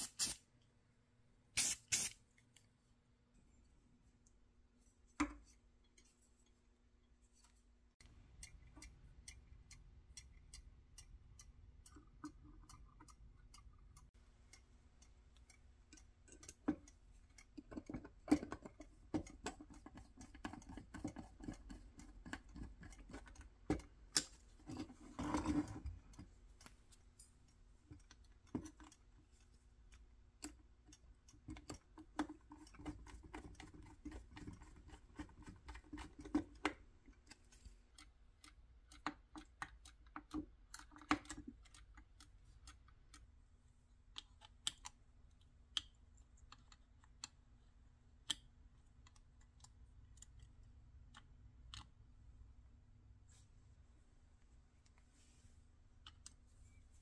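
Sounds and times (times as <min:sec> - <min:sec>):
clockwork timer ticking: 0:08.0 - 0:17.6.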